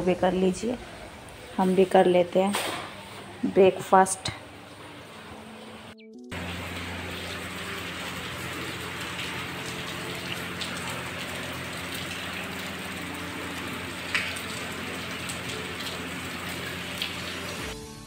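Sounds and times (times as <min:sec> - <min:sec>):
rain on concrete: 0:06.3 - 0:17.8
water drips and splashes: 0:06.3 - 0:17.8.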